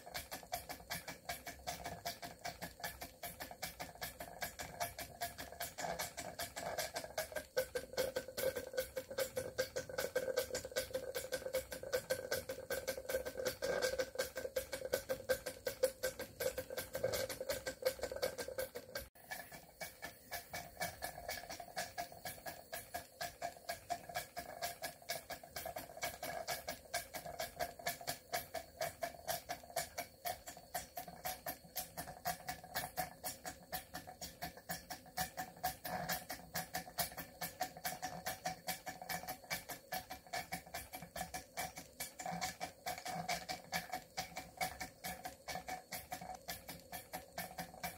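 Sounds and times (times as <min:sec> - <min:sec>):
model steam engine knocking: 0:00.0 - 0:47.9.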